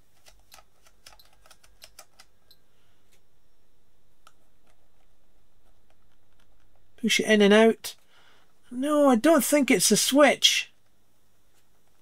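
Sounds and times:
rotary switch plastic clicking: 0.1 - 2.6.

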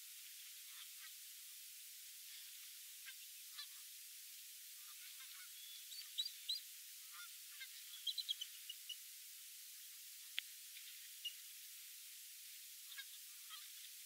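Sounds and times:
steady hiss: 0.0 - 14.0
geese calling: 4.8 - 9.0, 12.8 - 13.9.

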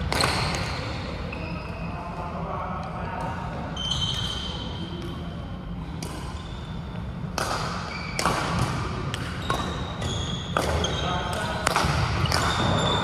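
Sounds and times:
rackets striking shuttlecocks: 0.0 - 0.7, 6.0 - 6.4, 7.2 - 12.9
sneakers squeaking on floor: 0.0 - 2.1, 3.7 - 5.1, 6.0 - 13.0.

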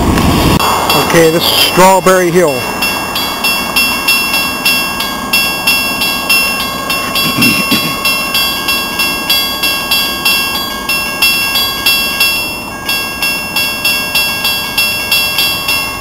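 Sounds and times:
low rumble: 0.0 - 8.5
railroad crossing bell ringing: 0.6 - 16.0.

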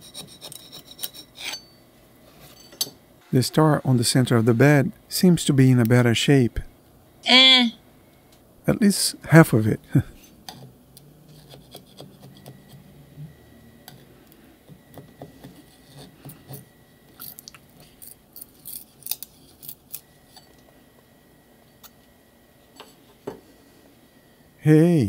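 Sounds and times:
spatula scraping print bed: 11.3 - 12.9.

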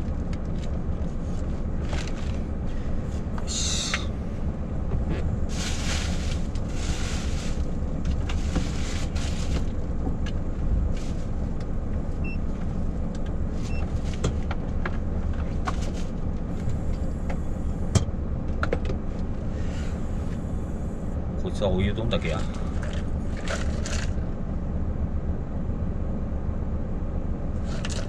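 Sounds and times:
diesel truck engine idling: 0.0 - 28.0
rustle: 5.5 - 9.9, 10.8 - 11.7.

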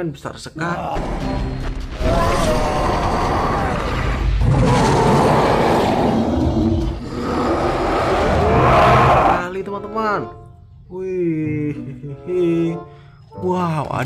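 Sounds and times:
cartoon monsters roaring: 2.0 - 9.4.

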